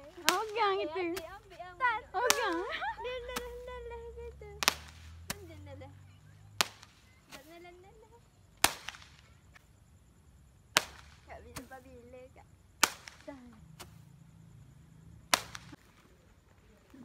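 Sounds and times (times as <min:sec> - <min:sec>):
roman candle pops: 0:04.6 - 0:05.5, 0:06.6 - 0:07.5, 0:08.6 - 0:09.3, 0:15.3 - 0:15.8.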